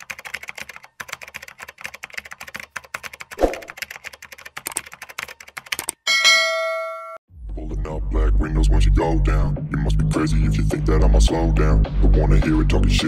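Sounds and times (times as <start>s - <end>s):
typing on computer keyboard: 0.0s - 6.0s.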